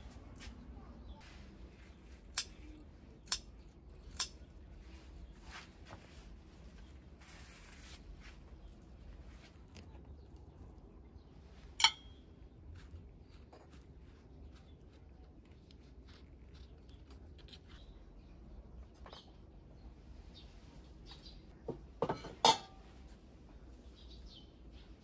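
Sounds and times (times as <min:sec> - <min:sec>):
garden shears snipping: 0:01.8 - 0:05.5.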